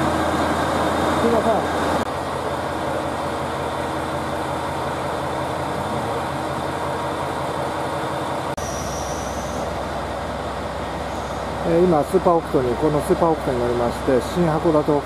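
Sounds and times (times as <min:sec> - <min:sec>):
diesel train engine idling: 0:00.0 - 0:15.0.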